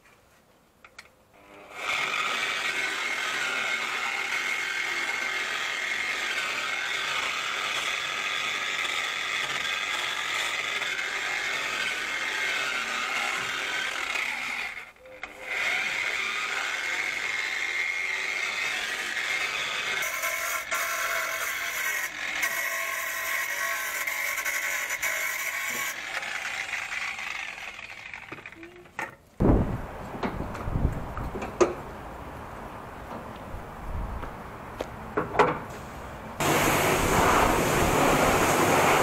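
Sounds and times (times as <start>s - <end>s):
angle grinder whining: 1.4s - 29.0s, 36.4s - 39.0s.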